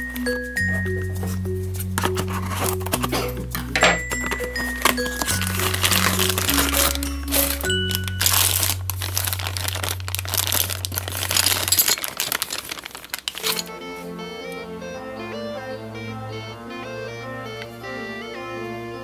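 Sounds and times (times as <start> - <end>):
background music with bass line: 0.0 - 11.8, 13.6 - 19.0
plastic bag crinkling: 2.0 - 13.7.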